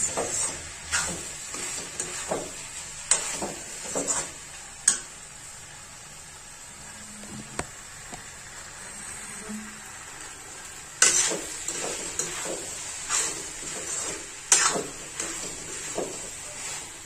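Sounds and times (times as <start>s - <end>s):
metal spatula scraping a pan: 0.0s - 5.1s, 11.0s - 17.0s
food sizzling: 0.0s - 17.0s.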